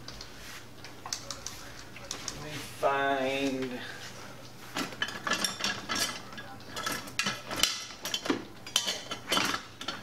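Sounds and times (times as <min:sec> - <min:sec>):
kitchen utensils clattering: 0:04.7 - 0:10.0.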